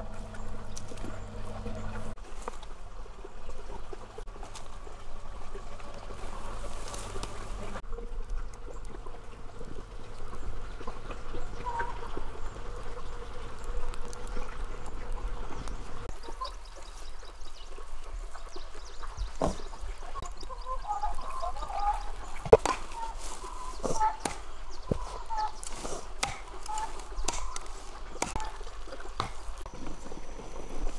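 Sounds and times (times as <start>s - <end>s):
trickle of running water: 2.3s - 22.5s
farm fowl calling: 10.9s - 13.4s, 20.2s - 28.6s.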